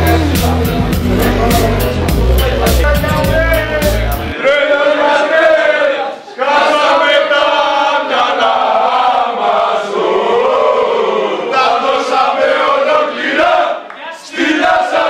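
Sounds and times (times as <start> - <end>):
crowd of men chanting: 3.0 - 15.0.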